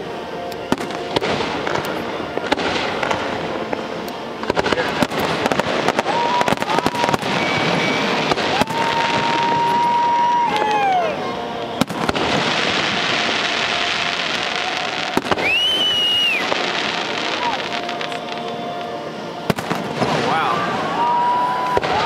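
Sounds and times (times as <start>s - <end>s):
fireworks bangs and crackling: 0.0s - 22.0s
murmur of voices: 0.0s - 22.0s
steady high whistle: 5.9s - 19.5s.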